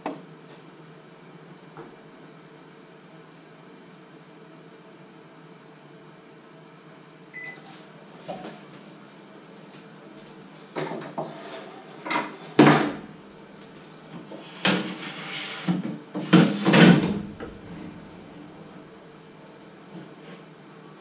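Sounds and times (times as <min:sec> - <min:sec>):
kitchen things knocking and clattering: 0:12.0 - 0:13.0.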